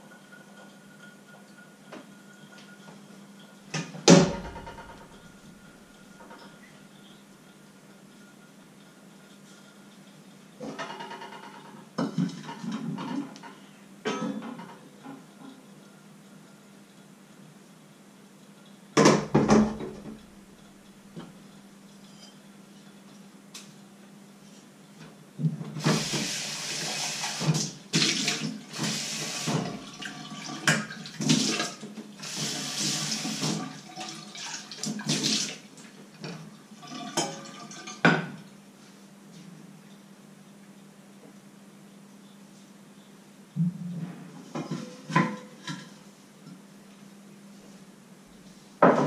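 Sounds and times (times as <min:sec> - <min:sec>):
sharp knocks: 0:04.1 - 0:05.3
tap water filling saucepan: 0:25.8 - 0:35.6.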